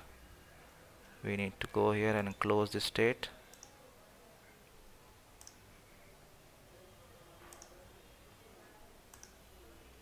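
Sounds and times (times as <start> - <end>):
computer mouse clicks: 3.5 - 3.8, 5.4 - 5.6, 7.5 - 7.8, 9.1 - 9.4.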